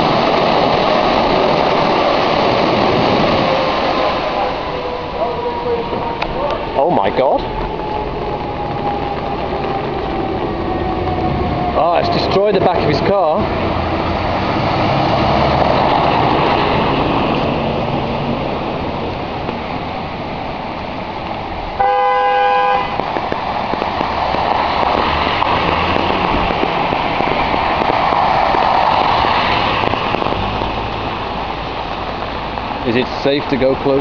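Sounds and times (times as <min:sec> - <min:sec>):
tyres splashing through water: 0:00.0 - 0:34.0
car horn honk: 0:21.8 - 0:23.0.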